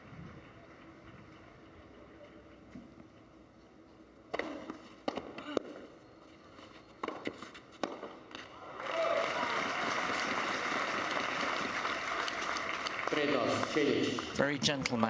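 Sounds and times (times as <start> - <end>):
tennis ball hit with rackets: 4.3 - 5.8, 7.0 - 8.5
crowd applause: 8.6 - 14.4.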